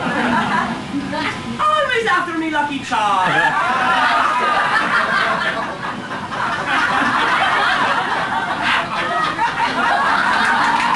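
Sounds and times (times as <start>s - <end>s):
audience laughing: 0.0s - 1.0s, 3.2s - 10.9s.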